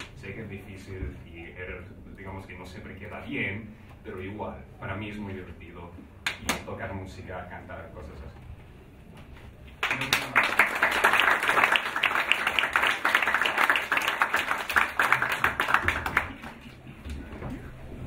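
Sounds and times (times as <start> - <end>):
audience applauding: 9.8 - 16.8.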